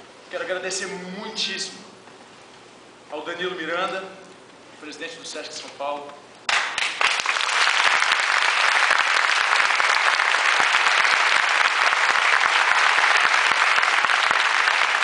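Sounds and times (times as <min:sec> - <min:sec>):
audience applauding: 0:06.5 - 0:15.0.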